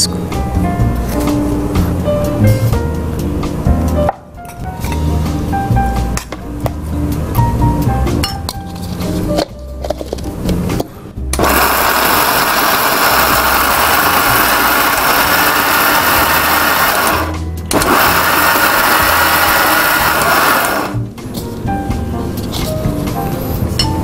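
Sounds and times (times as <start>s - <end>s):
mixer grinder motor grinding: 11.4s - 21.0s.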